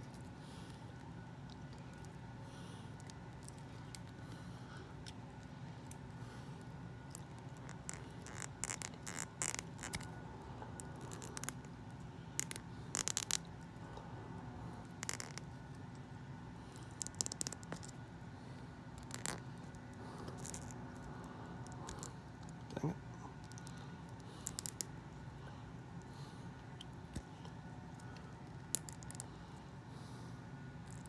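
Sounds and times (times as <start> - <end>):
small plastic clicks and scratches: 7.1 - 10.1, 14.8 - 15.5, 16.8 - 18.0, 19.0 - 22.6, 23.4 - 24.9, 28.0 - 29.3.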